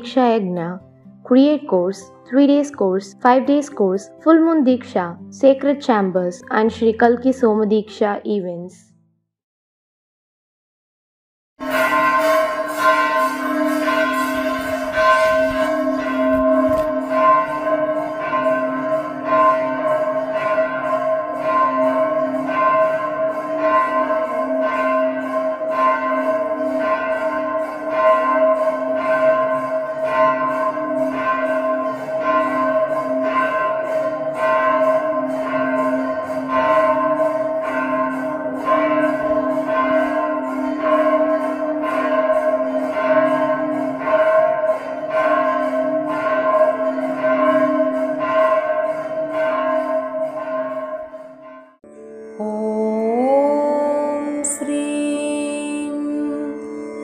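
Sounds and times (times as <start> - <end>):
temple bells pealing: 11.6 - 57.0.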